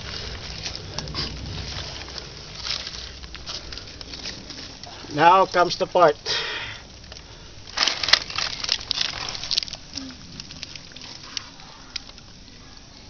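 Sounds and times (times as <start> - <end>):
leaves and gravel crackling underfoot: 0.0 - 13.0.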